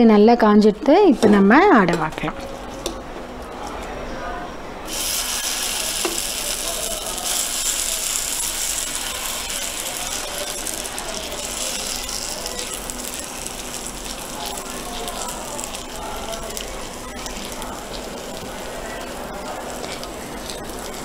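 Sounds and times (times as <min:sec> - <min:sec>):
batter sizzling in oil: 0:04.9 - 0:21.0.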